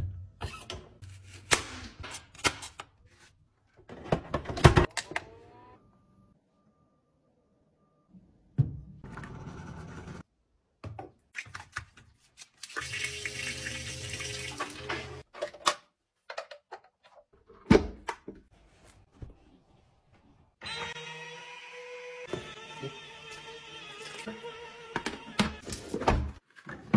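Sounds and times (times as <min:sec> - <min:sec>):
toilet flushing: 0:12.8 - 0:15.2.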